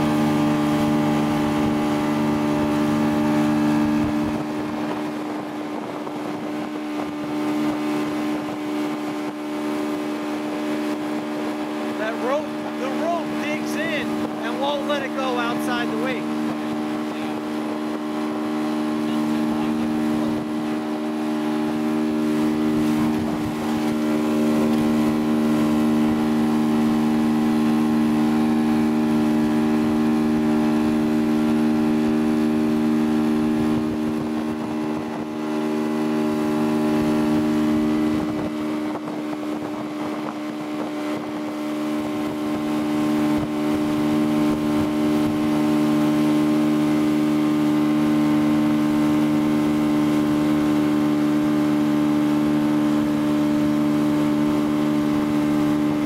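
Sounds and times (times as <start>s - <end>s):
motorboat engine drone: 0.0s - 56.0s
water rushing in wake: 0.0s - 56.0s.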